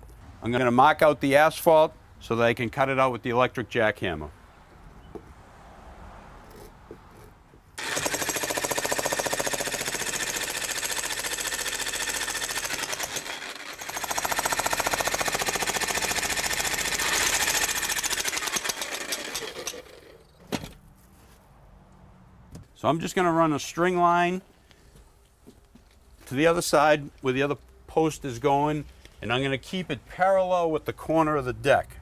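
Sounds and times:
jackhammer breaking asphalt: 0:07.8 - 0:20.2.

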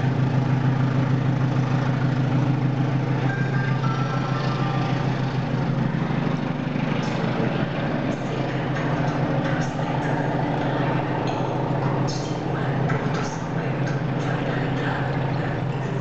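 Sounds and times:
diesel locomotive engine drone: 0:00.0 - 0:16.0.

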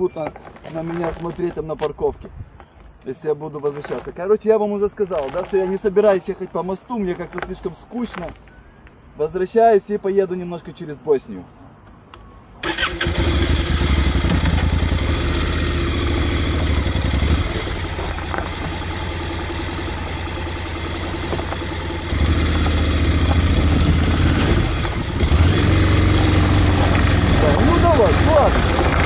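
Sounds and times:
motorcycle engine running: 0:13.0 - 0:29.0.

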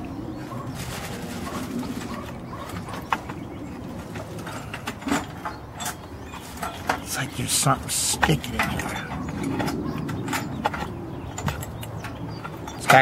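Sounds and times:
bird cooing: 0:00.0 - 0:04.9, 0:08.7 - 0:11.4.

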